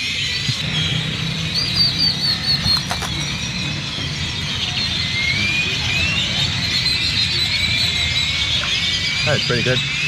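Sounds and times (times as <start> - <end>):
chorus of birds chirping: 0.0 - 10.0.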